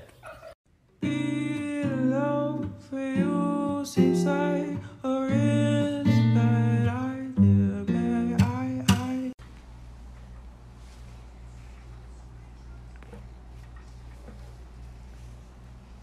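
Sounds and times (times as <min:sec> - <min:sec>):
person singing: 0:01.0 - 0:09.4
strummed guitar chords: 0:01.0 - 0:09.4.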